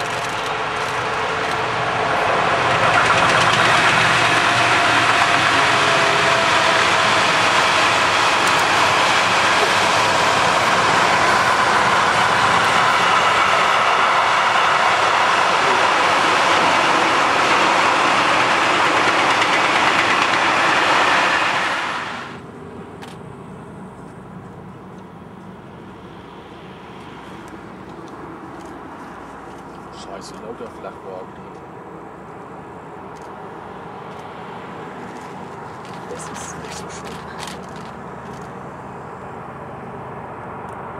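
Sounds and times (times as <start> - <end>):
train wheels rattling on rails: 0.0 - 22.4, 34.0 - 38.6.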